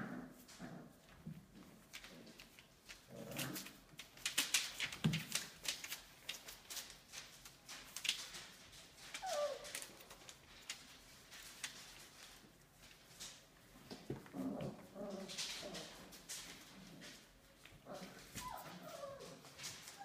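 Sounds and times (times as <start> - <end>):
claws scrabbling on newspaper: 1.8 - 20.0
puppy whimper: 9.1 - 10.1, 18.3 - 20.0.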